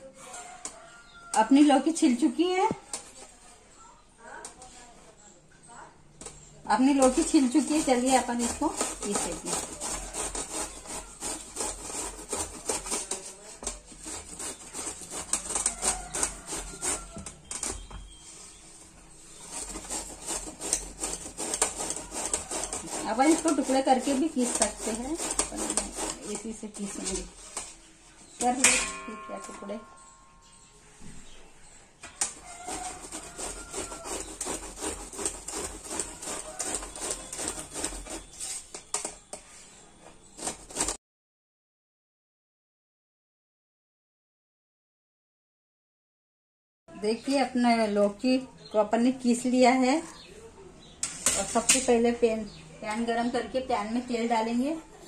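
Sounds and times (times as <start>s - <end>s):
gourd rasping on grater: 6.8s - 17.4s, 19.2s - 27.8s, 32.2s - 39.3s, 40.3s - 41.0s.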